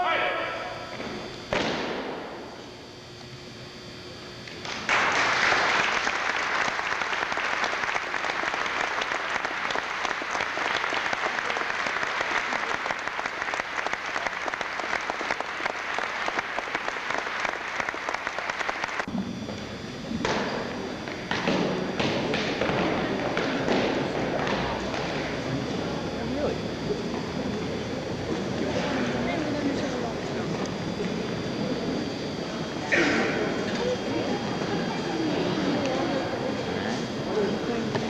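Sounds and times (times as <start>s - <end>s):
audience applauding: 4.6s - 19.1s.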